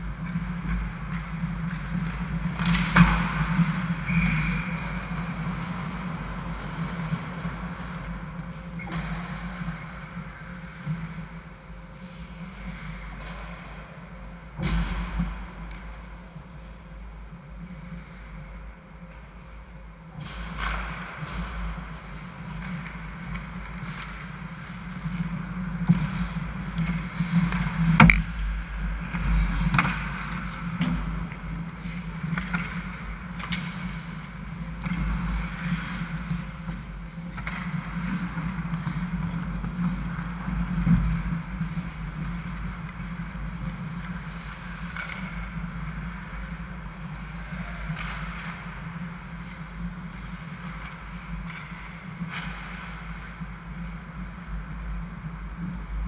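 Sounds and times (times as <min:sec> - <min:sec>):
steady low hum: 0:00.0 - 0:56.0
skate blades scraping ice: 0:00.1 - 0:14.1, 0:20.2 - 0:28.2, 0:29.0 - 0:56.0.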